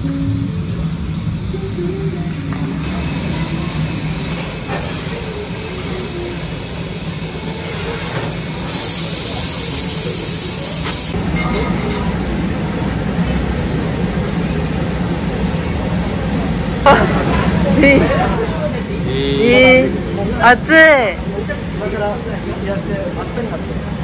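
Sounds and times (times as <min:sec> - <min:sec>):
electric fans: 0:00.0 - 0:24.0
loud hiss: 0:08.3 - 0:11.2.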